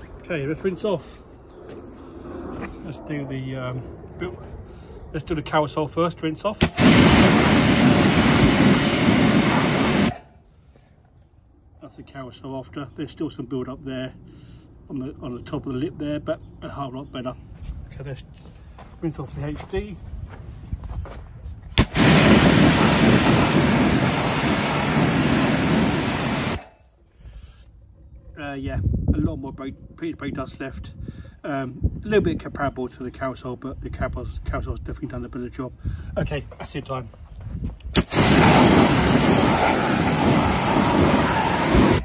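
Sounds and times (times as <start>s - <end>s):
pressure washer spraying: 6.6s - 10.2s, 21.8s - 26.7s, 38.0s - 42.0s.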